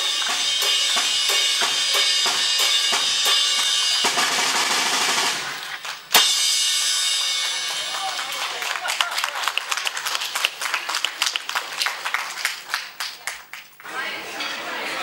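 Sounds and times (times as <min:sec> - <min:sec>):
sharp bang: 0:00.0 - 0:08.2
drum strokes: 0:00.0 - 0:08.6
cymbals ringing: 0:00.0 - 0:09.1.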